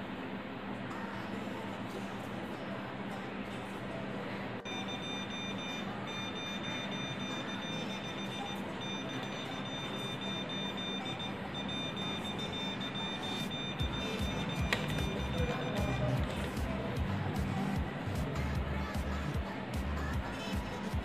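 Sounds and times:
buzzer high-pitched tone: 4.6 - 16.3.

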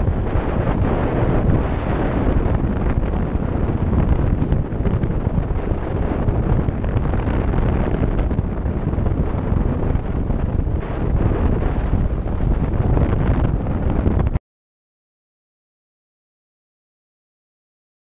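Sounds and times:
motorcycle engine and tyre noise: 0.0 - 14.4
wind buffeting microphone: 0.0 - 14.4.

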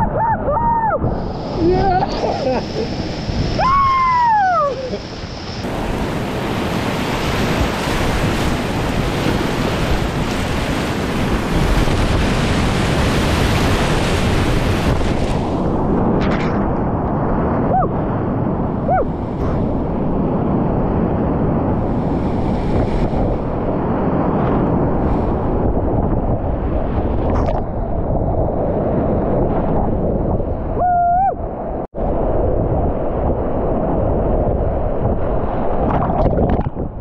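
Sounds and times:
wind buffeting microphone: 0.0 - 37.0
whitewater rapids roaring: 0.6 - 15.5.

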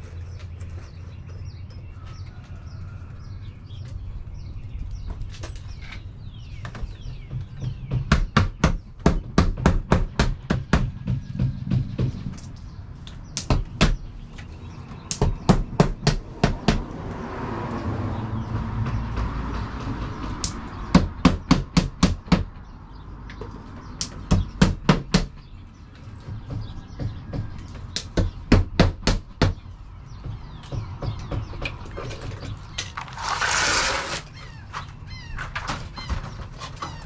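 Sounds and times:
hammer striking nails: 7.3 - 12.4, 15.1 - 16.9, 18.9 - 22.6, 24.0 - 25.4, 26.3 - 29.6.

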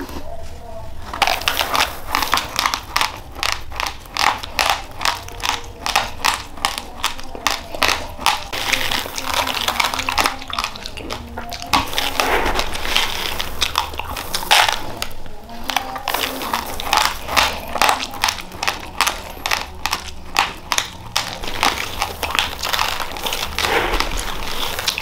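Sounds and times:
person chewing crunchy rice: 1.0 - 25.0
plastic bag rustling: 8.5 - 19.5, 21.0 - 25.0.

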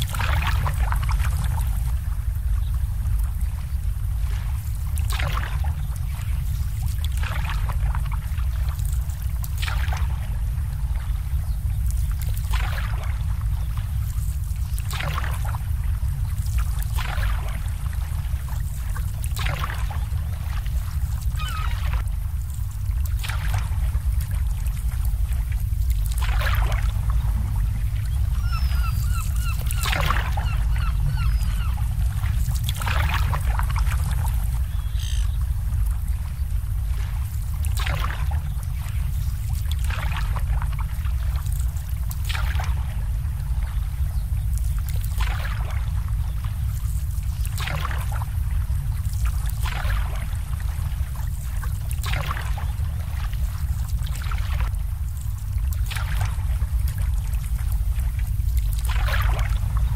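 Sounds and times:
low rumble: 0.0 - 59.9
water lapping: 0.0 - 59.9
bird calls: 21.3 - 22.0, 28.0 - 32.4, 34.6 - 35.4.

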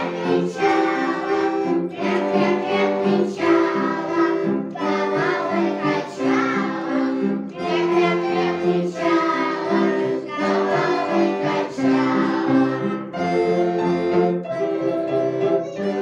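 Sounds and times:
children singing a folk song: 0.0 - 13.3
accordion playing chords: 0.0 - 16.0.

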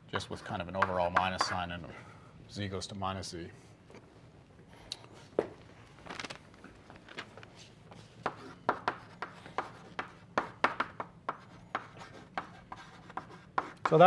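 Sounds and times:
chalk writing on a blackboard: 0.4 - 1.6, 8.2 - 14.0.

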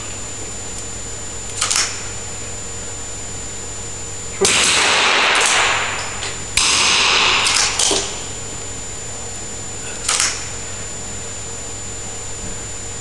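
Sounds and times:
rifle shots with echo: 4.4 - 6.0.

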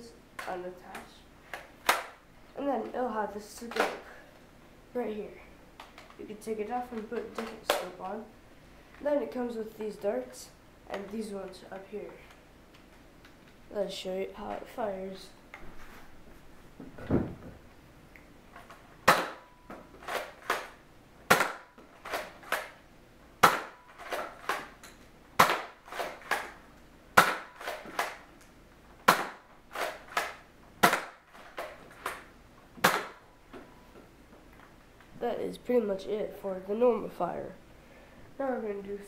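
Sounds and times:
soft thump: 16.8 - 17.6.

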